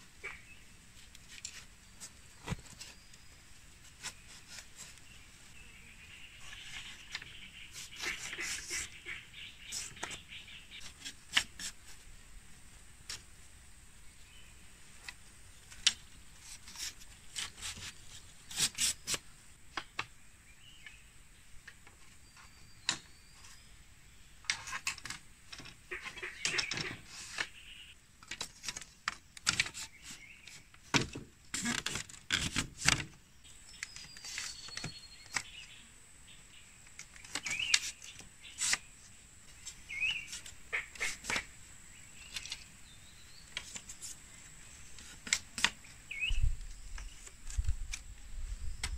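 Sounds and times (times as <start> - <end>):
bamboo strips clicking and clattering: 9.7 - 12.0, 15.0 - 20.1, 24.4 - 27.5, 28.2 - 33.2, 33.8 - 35.5, 36.8 - 41.5, 42.2 - 42.7, 43.5 - 44.2, 44.9 - 46.0.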